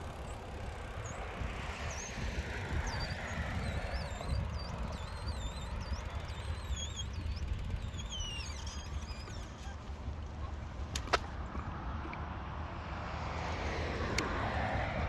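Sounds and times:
road traffic: 0:00.0 - 0:15.0
wind: 0:00.0 - 0:15.0
high warbling whistles: 0:01.9 - 0:09.8.

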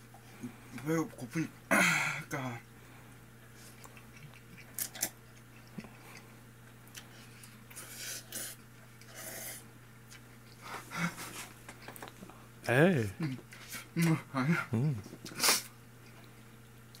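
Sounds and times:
quiet chewing: 0:02.7 - 0:14.3, 0:15.0 - 0:17.0.

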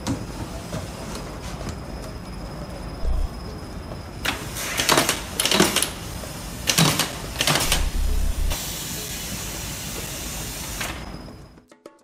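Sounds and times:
steady hiss: 0:02.9 - 0:11.6
stapler clicking: 0:06.7 - 0:08.6.

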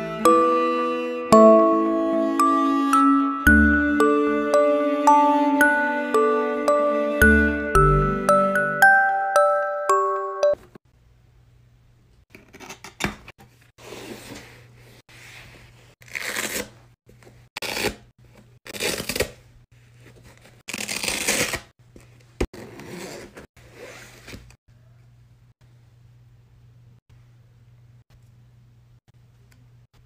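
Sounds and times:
plastic wrap tearing and rustling: 0:20.6 - 0:21.7.

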